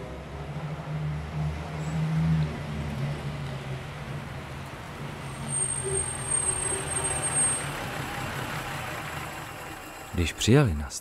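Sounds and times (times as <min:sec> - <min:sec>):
road noise: 0:00.0 - 0:11.0
car engine hum: 0:06.0 - 0:10.9.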